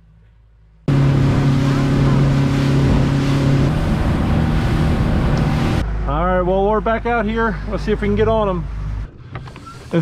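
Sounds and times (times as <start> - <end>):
outboard motor hum: 0.8 - 6.2
water hissing off hull: 0.9 - 5.8
wind on microphone: 0.9 - 5.8.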